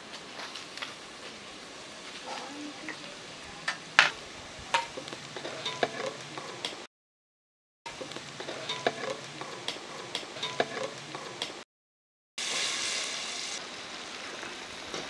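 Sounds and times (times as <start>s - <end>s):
spices sizzling in hot oil: 0.0s - 6.9s, 7.9s - 11.6s, 12.4s - 15.0s
spoon scraping metal pot: 4.8s - 6.5s, 8.4s - 9.6s, 10.4s - 11.4s.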